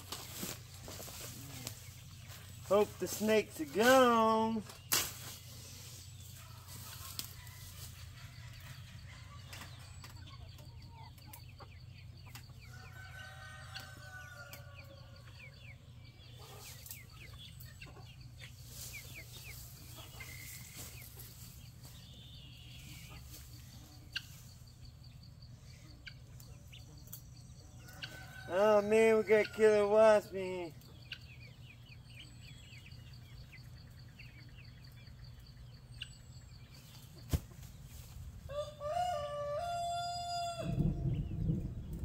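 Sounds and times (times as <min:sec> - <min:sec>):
clicks and rustling of weeds: 0:00.0 - 0:05.5, 0:06.7 - 0:07.9
chickens clucking: 0:00.0 - 0:41.6.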